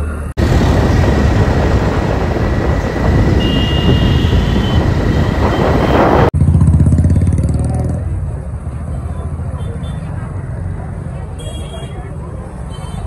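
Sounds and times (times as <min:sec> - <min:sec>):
road noise: 0:00.0 - 0:13.0
street traffic rumble: 0:00.0 - 0:13.0
wind buffeting microphone: 0:00.4 - 0:06.4
motorcycle engine: 0:00.4 - 0:08.5.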